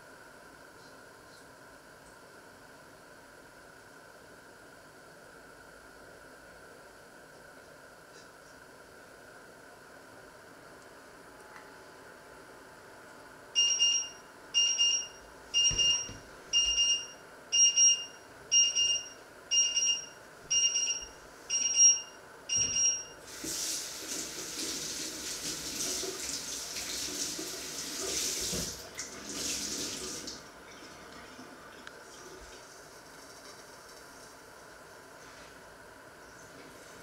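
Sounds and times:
two-tone electronic alarm beeps: 13.6 - 23.2
tap water running into sink: 23.3 - 30.4.

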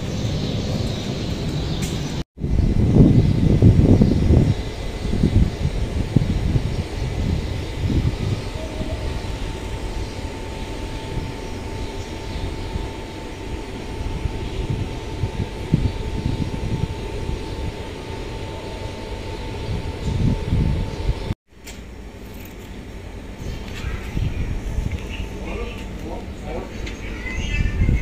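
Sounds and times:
wind buffeting microphone: 0.0 - 21.4, 23.0 - 28.0
low engine-like rumble: 0.0 - 28.0
faint high whine: 2.4 - 28.0.

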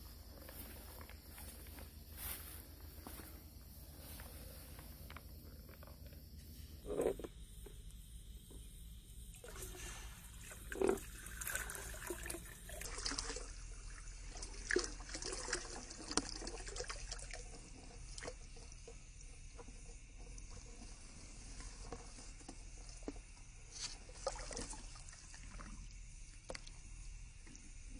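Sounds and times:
water trickling and dripping: 9.4 - 20.7
small splashes: 24.1 - 25.8.

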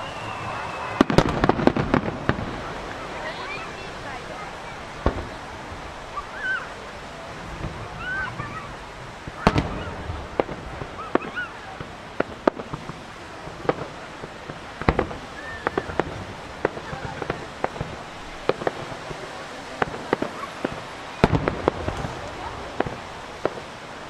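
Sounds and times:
firework shells bursting: 10.3 - 23.8.

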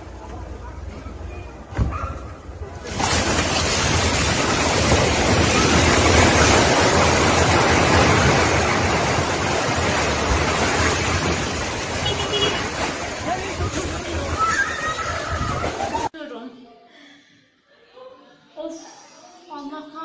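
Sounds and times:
roar of falling rubble: 2.8 - 12.0.

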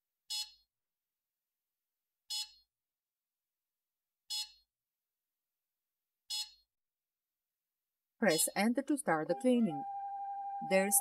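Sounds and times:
short electronic beeps: 9.3 - 11.0.

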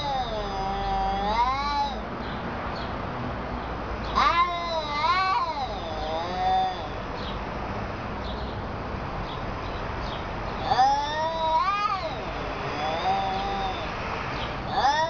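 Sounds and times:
cats yowling: 0.0 - 2.1, 4.0 - 7.1, 10.6 - 15.0.

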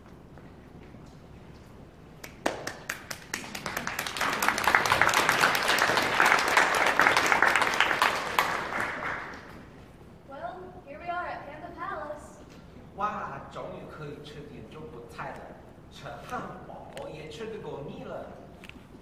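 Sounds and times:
audience applause: 2.3 - 9.7.

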